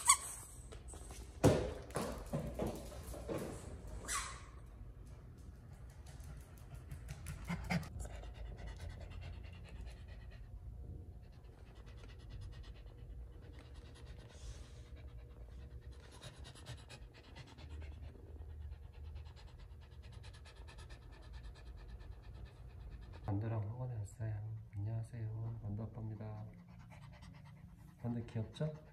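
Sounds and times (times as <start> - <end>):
dog panting: 6.0 - 23.8, 25.9 - 28.9.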